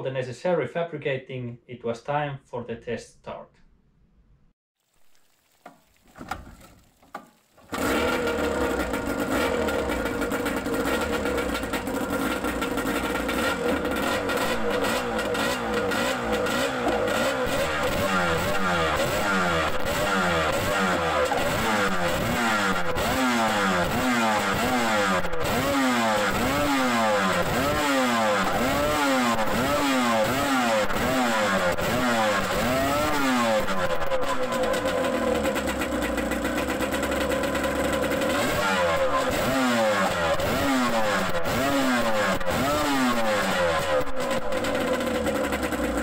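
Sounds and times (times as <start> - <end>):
outboard engine revving: 7.7 - 46.0.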